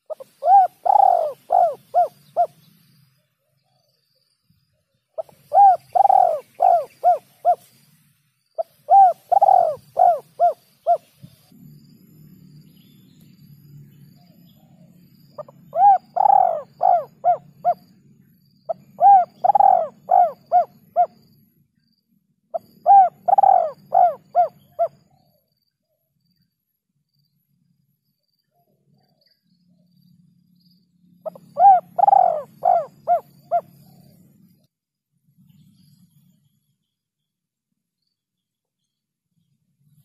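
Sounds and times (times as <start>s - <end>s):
dove cooing: 0.0s - 2.6s, 5.2s - 7.7s, 8.6s - 11.1s, 15.4s - 17.8s, 18.7s - 21.2s, 22.6s - 25.3s, 31.2s - 34.4s.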